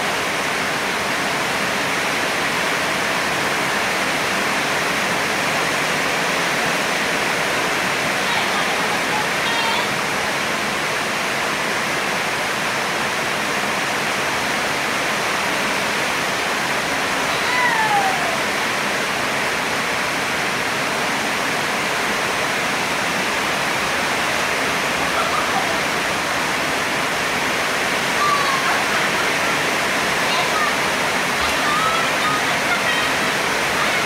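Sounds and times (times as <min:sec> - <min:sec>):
heavy rain hissing: 0:00.0 - 0:34.0.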